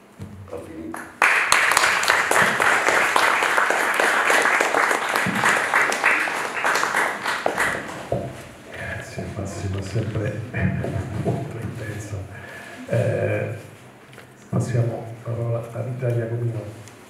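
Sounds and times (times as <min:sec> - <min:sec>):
audience applauding: 0:00.9 - 0:08.4.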